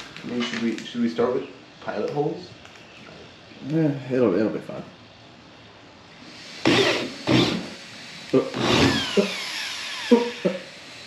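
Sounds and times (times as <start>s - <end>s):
power drill boring through plastic: 6.3s - 7.8s, 8.4s - 11.0s.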